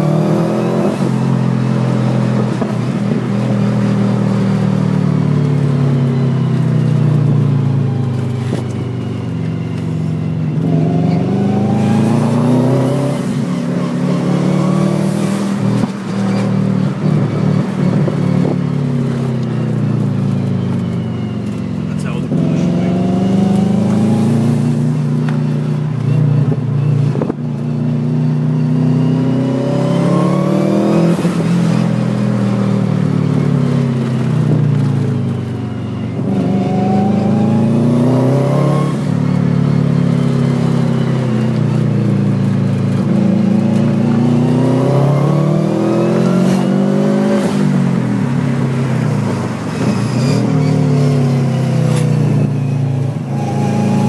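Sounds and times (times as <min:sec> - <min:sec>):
car engine revving hard: 0:10.6 - 0:18.6, 0:21.9 - 0:25.3, 0:28.6 - 0:34.6, 0:36.2 - 0:39.2, 0:42.8 - 0:54.0.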